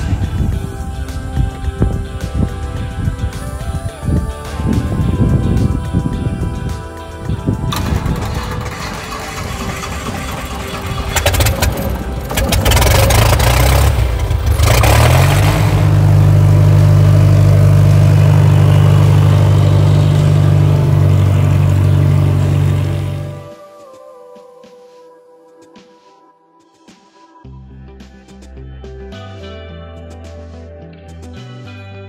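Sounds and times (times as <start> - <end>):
wind: 0.0 - 24.0
plane propeller engine running: 7.7 - 23.5.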